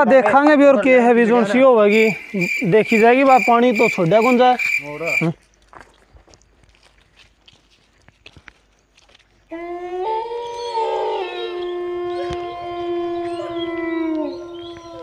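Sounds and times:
dogs howling: 0:09.5 - 0:15.0.

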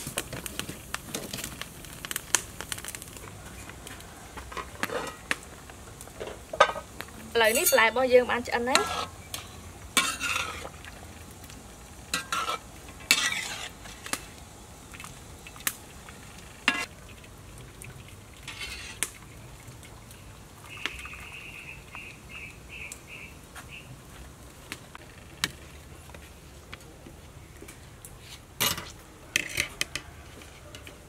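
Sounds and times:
wire skimmer scraping metal wok: 0:04.4 - 0:05.3, 0:06.2 - 0:10.8, 0:12.1 - 0:14.4, 0:18.4 - 0:19.1, 0:28.6 - 0:30.0
water bubbling: 0:14.6 - 0:22.4.

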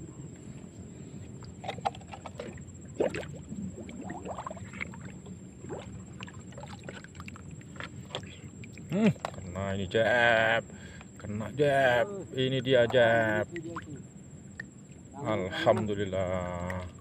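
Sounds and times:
water lapping and gurgling: 0:00.0 - 0:09.6, 0:12.7 - 0:17.0
steady low rumble: 0:00.0 - 0:17.0
small plops and drips: 0:01.3 - 0:09.6, 0:12.8 - 0:15.0, 0:16.5 - 0:17.0.

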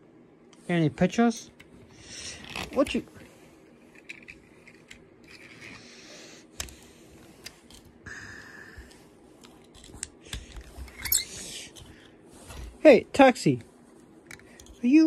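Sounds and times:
toy cars clicking and scraping: 0:03.9 - 0:06.8.

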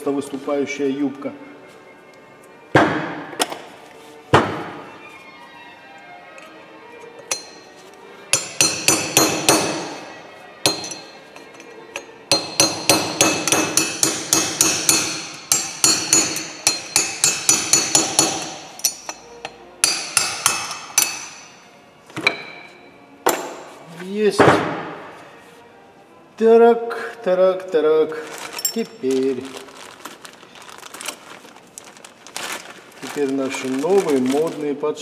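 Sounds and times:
hammer striking metal: 0:07.3 - 0:07.7, 0:08.3 - 0:10.1, 0:10.7 - 0:21.6, 0:22.2 - 0:23.7.

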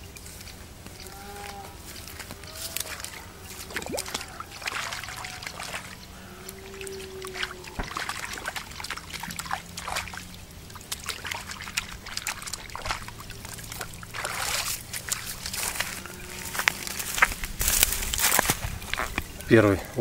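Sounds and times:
river water splashing and trickling: 0:00.0 - 0:20.0.

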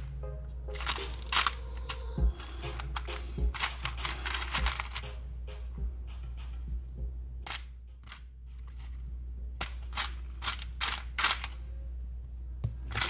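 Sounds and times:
small parts clattering in plastic box: 0:00.8 - 0:05.2, 0:09.6 - 0:11.6.

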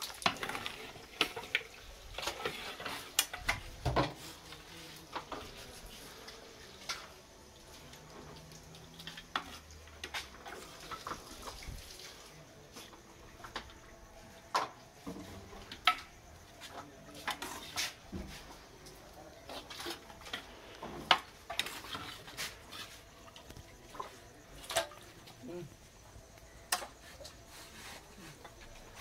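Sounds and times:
metal ladles clinking on pots: 0:19.0 - 0:25.3.

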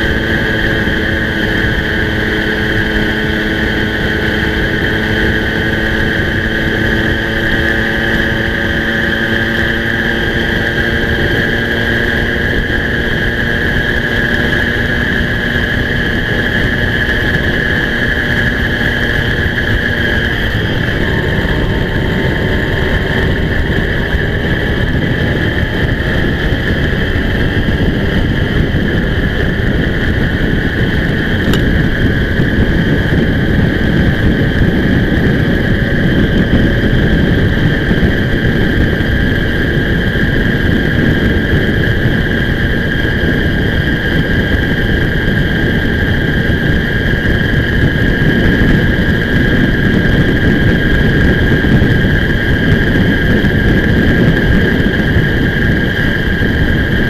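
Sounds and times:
moped engine running: 0:00.0 - 0:57.0
wind rush: 0:00.0 - 0:57.0.

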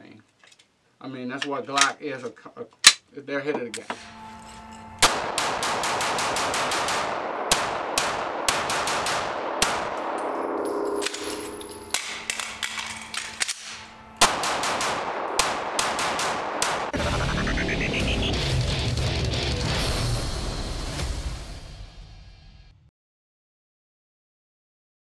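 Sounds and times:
pistol gunshots echoing indoors: 0:05.0 - 0:16.9.

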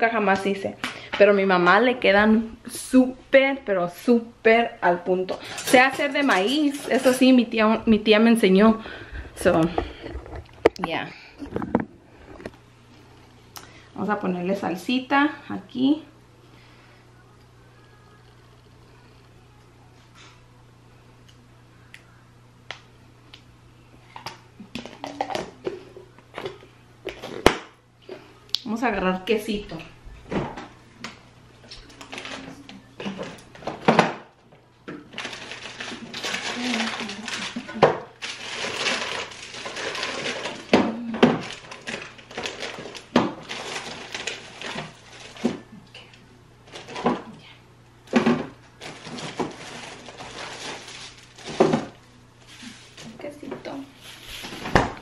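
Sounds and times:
rustling: 0:48.8 - 0:55.0
food containers knocking and clinking: 0:51.4 - 0:52.0.

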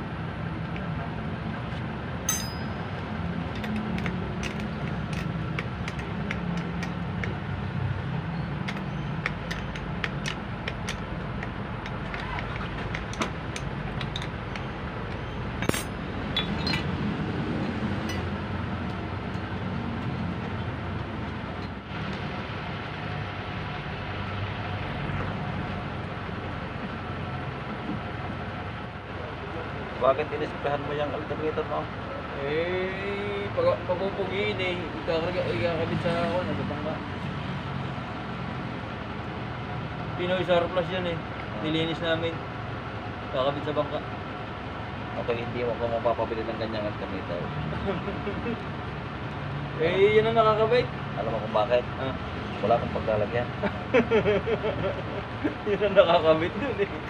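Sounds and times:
metal tools clinking: 0:02.3 - 0:02.8, 0:14.0 - 0:16.9, 0:17.6 - 0:18.3.

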